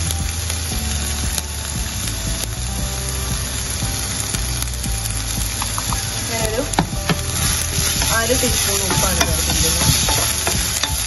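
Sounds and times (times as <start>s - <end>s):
vegetables sizzling in hot oil: 7.4s - 11.0s.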